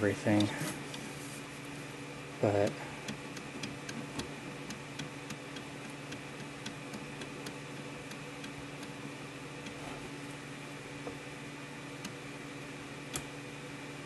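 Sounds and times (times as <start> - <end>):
steady low hum: 0.0 - 14.0
light mechanical clicks: 2.6 - 10.4, 12.0 - 12.2, 13.1 - 13.4.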